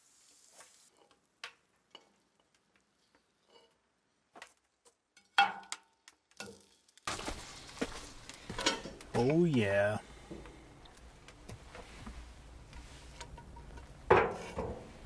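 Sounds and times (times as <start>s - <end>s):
steaks sizzling in pan: 0.0s - 1.0s.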